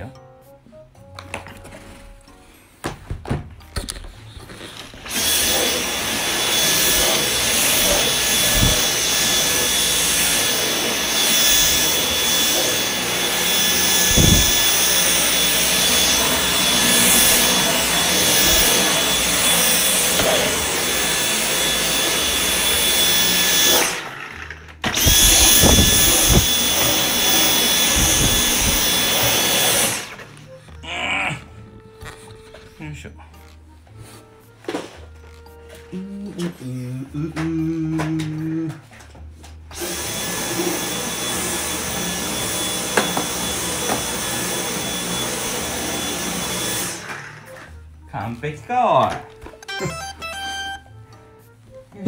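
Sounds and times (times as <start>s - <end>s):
vacuum cleaner motor whine: 4.6s - 30.6s, 39.7s - 47.9s.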